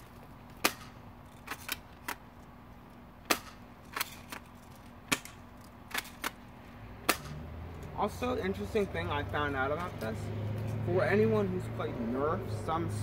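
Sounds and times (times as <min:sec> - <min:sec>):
airsoft shotgun shots: 0:03.3 - 0:04.1, 0:07.1 - 0:07.4.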